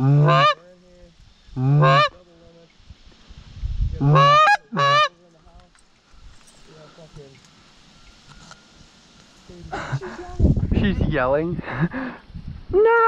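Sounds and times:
goose honking: 0.0s - 0.7s, 1.7s - 2.2s, 4.0s - 5.2s.

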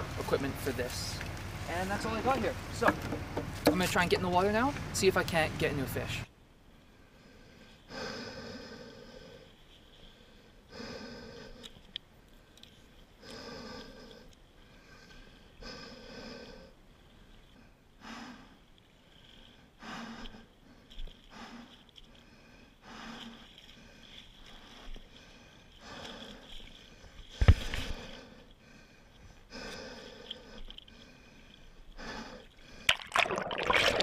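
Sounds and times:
person breathing heavily: 6.9s - 34.0s.

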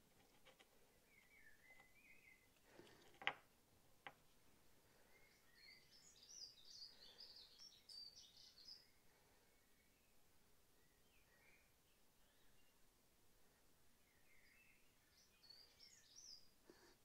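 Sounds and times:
songbird twittering: 1.1s - 2.5s, 5.1s - 9.0s.

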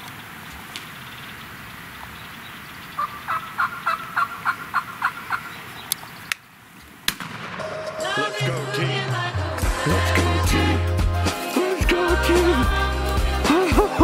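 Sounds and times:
turkey yelping: 3.0s - 6.0s
music: 7.6s - 14.0s.

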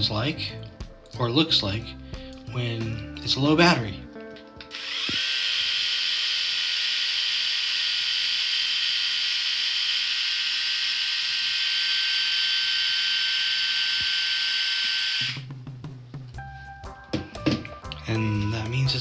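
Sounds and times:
electric shaver whining: 4.6s - 15.5s.

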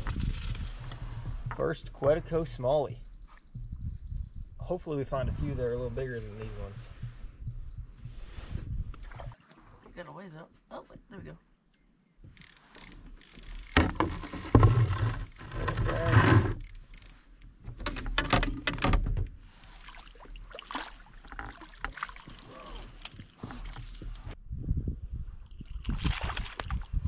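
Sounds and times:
paddle splashes in water: 19.8s - 22.5s, 25.8s - 27.0s.

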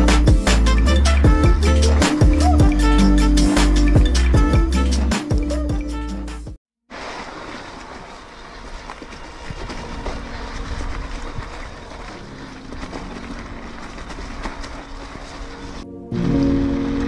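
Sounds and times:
bike tyres rolling on rough ground: 6.9s - 17.0s
wind buffeting microphone: 8.3s - 17.0s.

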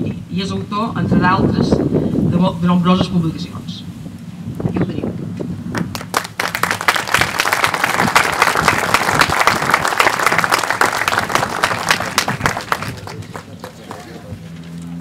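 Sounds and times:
audience applauding: 5.8s - 14.3s.

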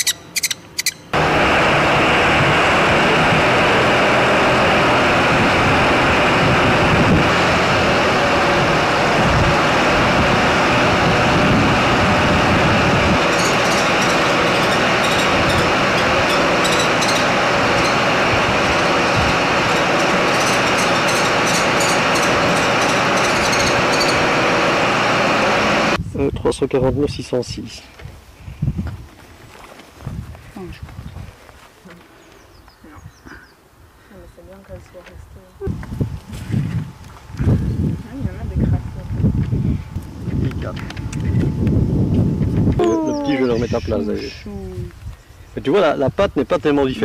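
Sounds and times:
boom lift engine running: 0.7s - 26.0s, 35.6s - 44.4s.

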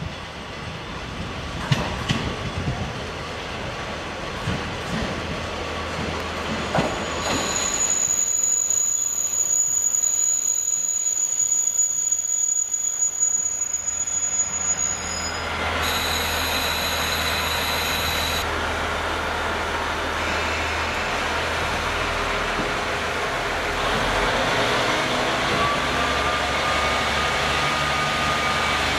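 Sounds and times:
train rumble: 0.0s - 9.9s, 12.6s - 28.9s
train brake squeal: 6.5s - 18.5s, 25.0s - 28.9s.

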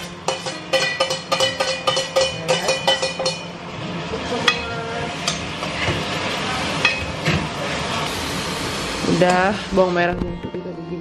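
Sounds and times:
frying sizzle: 0.0s - 10.2s
metal spoon clinking on pot: 0.3s - 3.5s.

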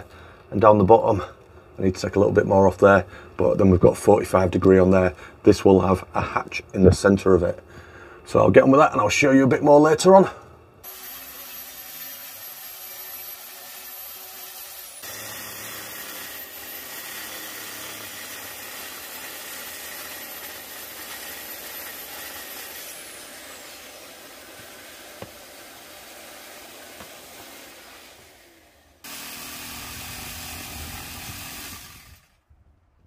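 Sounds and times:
track saw cutting board: 10.8s - 32.4s.

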